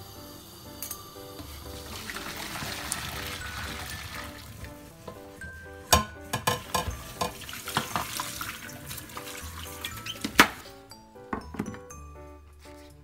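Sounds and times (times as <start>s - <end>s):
soft music: 0.0s - 13.0s
running tap water: 1.2s - 10.6s
hot water pouring into sink: 1.4s - 5.2s, 6.0s - 10.5s
metal pan clanking against sink: 5.9s - 9.4s.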